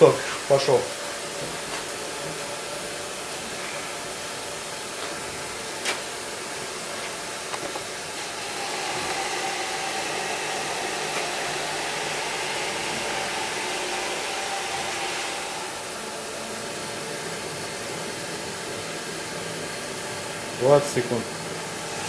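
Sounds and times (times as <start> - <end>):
gas torch burner hissing: 0.0 - 22.0.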